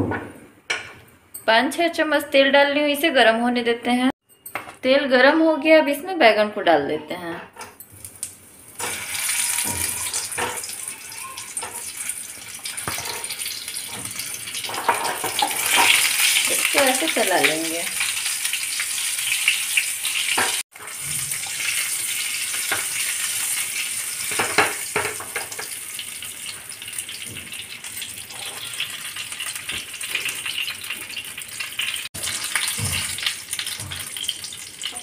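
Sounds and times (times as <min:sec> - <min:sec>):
vegetables sizzling in oil: 0:08.1 - 0:35.0.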